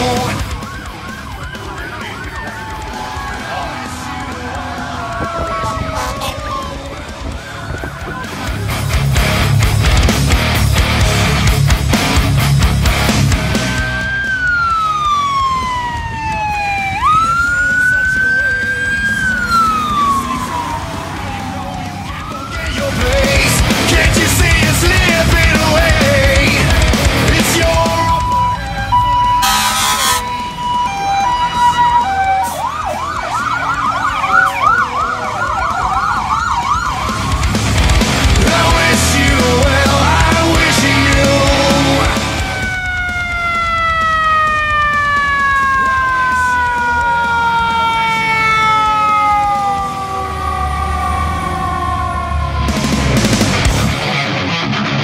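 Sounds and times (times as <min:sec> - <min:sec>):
siren wailing: 0:00.0 - 0:08.9, 0:13.5 - 0:54.1.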